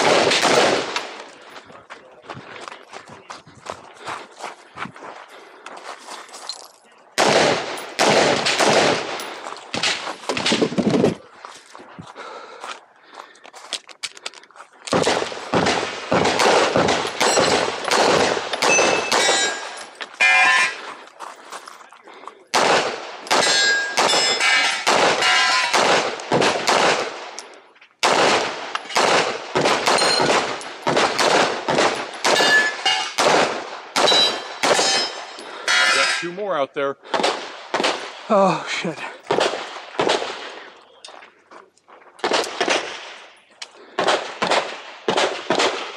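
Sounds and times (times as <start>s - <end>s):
pistol shots: 0.0s - 1.3s, 7.2s - 10.8s, 14.9s - 20.8s, 22.5s - 27.4s, 28.0s - 36.0s, 37.0s - 38.3s, 39.3s - 40.7s, 42.2s - 43.3s, 43.9s - 45.9s
steel targets pinging: 16.9s - 20.8s, 23.3s - 25.8s, 29.8s - 30.7s, 32.0s - 33.3s, 34.0s - 36.4s.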